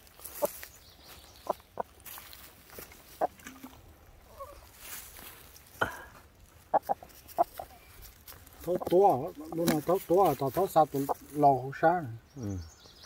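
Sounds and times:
chicken clucking: 6.7s - 11.3s.

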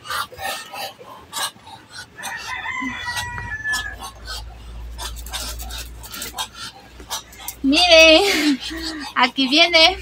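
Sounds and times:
rooster crowing: 2.2s - 4.4s.

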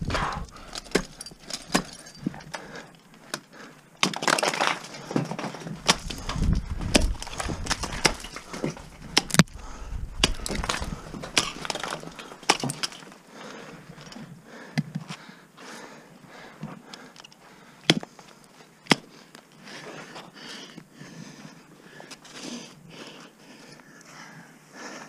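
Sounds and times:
ice crunching: 4.0s - 9.4s, 10.2s - 13.2s.

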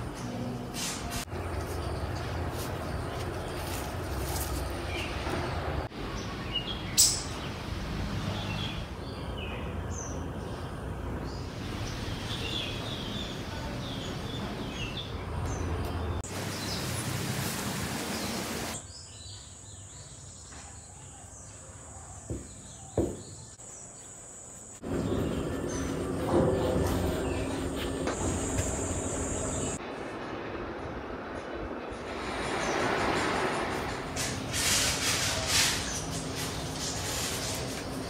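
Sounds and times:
steady background noise: 0.0s - 38.0s
birds chirping: 1.3s - 17.2s, 17.9s - 29.8s.

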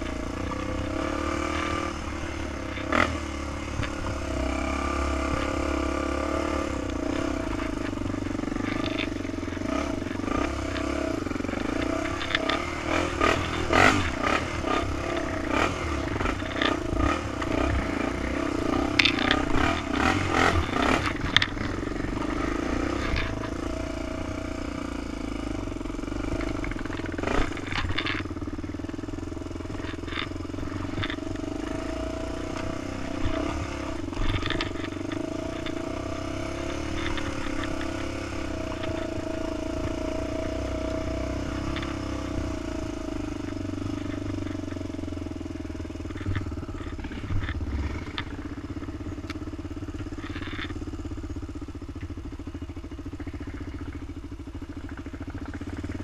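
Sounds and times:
quad engine running: 0.0s - 56.0s
knocks and clatter over rocks: 6.8s - 23.8s, 26.1s - 52.3s.

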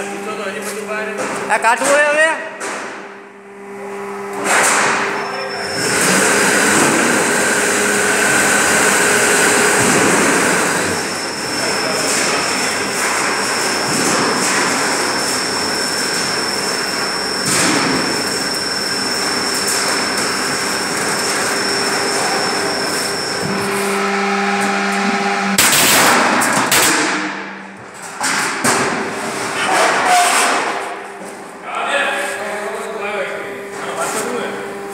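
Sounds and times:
high machine whine: 3.1s - 30.2s, 30.8s - 34.9s
roll forming machine running: 3.2s - 31.2s.

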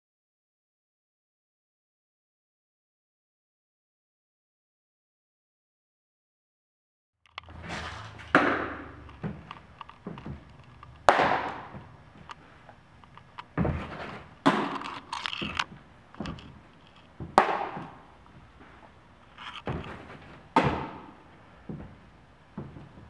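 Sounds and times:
baseballs smacking into gloves: 8.3s - 12.4s, 13.4s - 16.6s, 17.2s - 18.8s, 19.7s - 22.0s.

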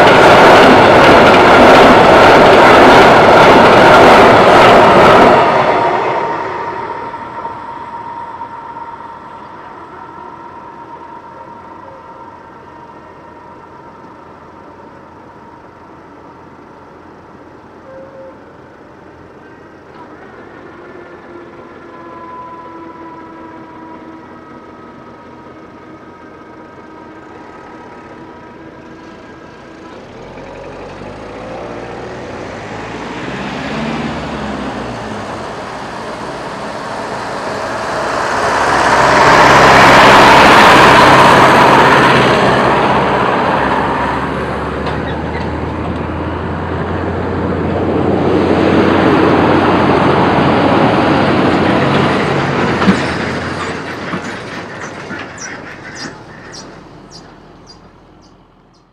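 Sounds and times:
tractor passing: 0.0s - 17.8s, 18.5s - 58.9s
level crossing warning tone: 0.0s - 18.7s.

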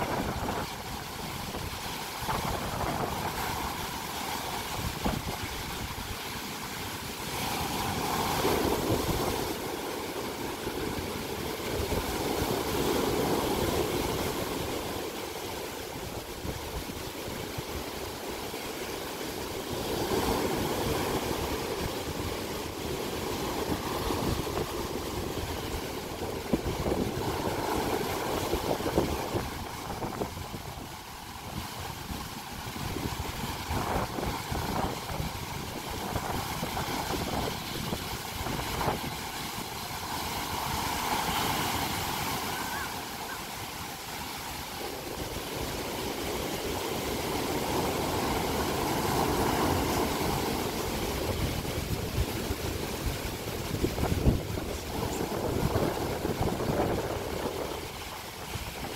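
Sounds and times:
wind buffeting microphone: 0.0s - 6.3s, 19.4s - 43.7s, 44.8s - 58.9s
waves crashing on beach: 0.0s - 58.9s.

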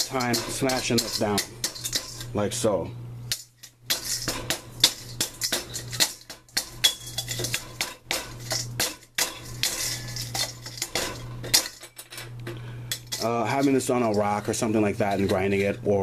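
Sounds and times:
stick knocking in metal bowl: 0.0s - 2.3s
charcoal cracking: 3.2s - 11.8s.

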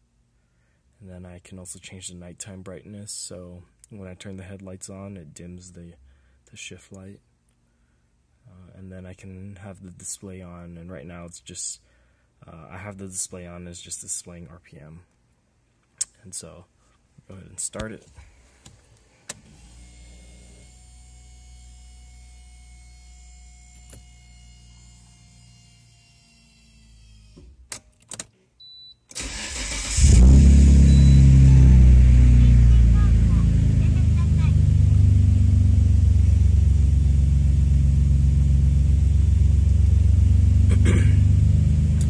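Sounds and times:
car engine idling: 29.3s - 42.0s.

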